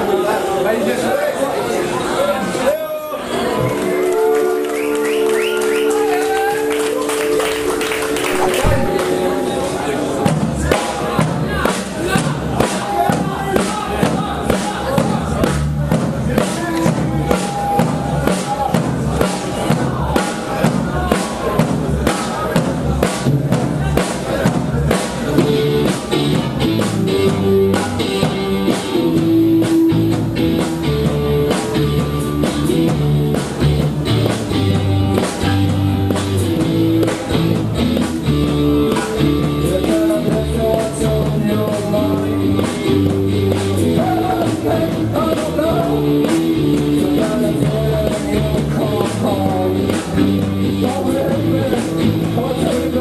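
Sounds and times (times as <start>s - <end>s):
rock band playing live: 3.5s - 53.0s
lead vocal singing: 38.7s - 53.0s.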